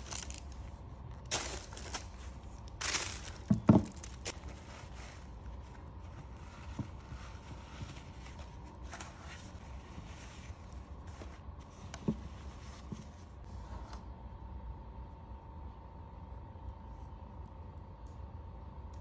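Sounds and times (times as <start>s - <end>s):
tissue paper rustling: 0.0s - 13.7s.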